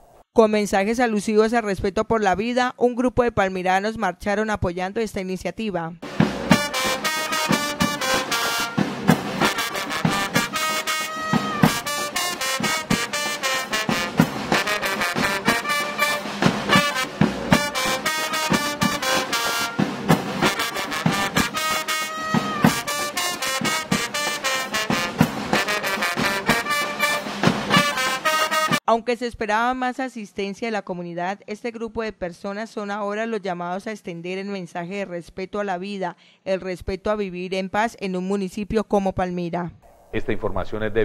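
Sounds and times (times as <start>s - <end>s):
bass drum and snare beat: 6.0s - 28.8s
brass horns playing tune: 6.0s - 28.8s.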